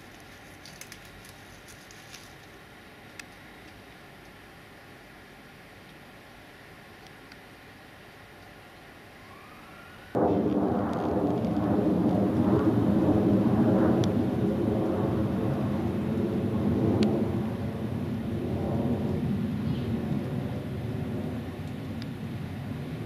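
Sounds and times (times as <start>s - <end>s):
distant engine rumble: 10.2s - 23.0s.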